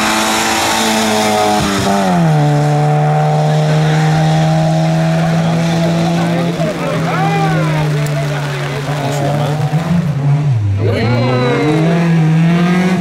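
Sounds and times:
rally car engine passing: 0.0 - 13.0
tyres hissing on wet road: 5.6 - 9.9.

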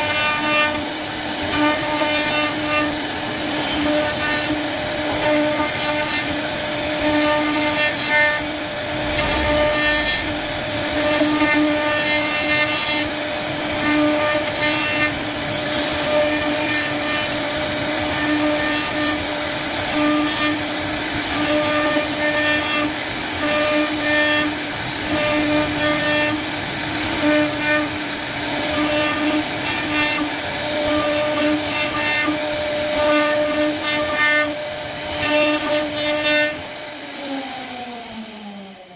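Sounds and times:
router spindle whining: 0.0 - 19.4
bit cutting wood: 0.0 - 20.7.

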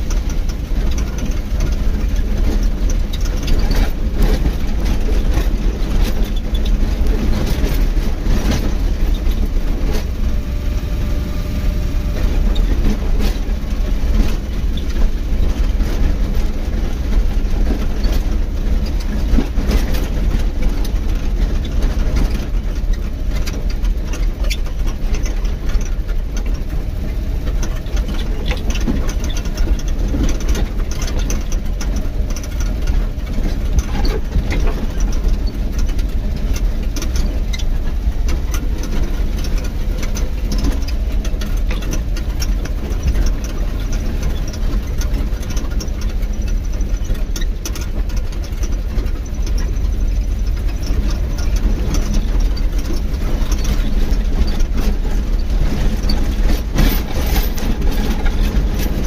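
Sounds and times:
knocks and rattles from bumps: 0.0 - 10.5, 12.0 - 59.0
vehicle engine and road rumble: 0.0 - 59.0.

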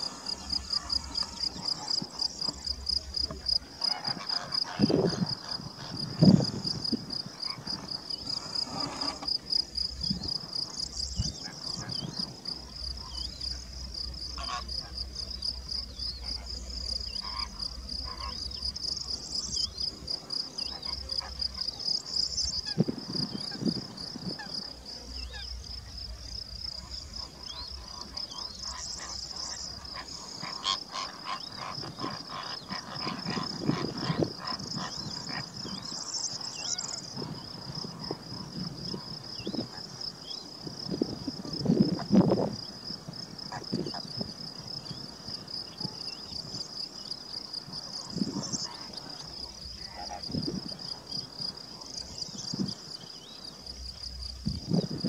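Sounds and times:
insects trilling: 0.0 - 55.0.

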